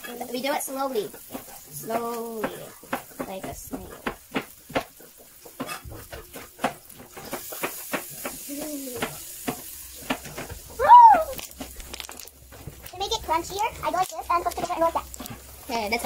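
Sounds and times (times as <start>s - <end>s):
slime crackling and popping: 7.2s - 16.0s
high vocal exclamation: 10.8s - 11.4s.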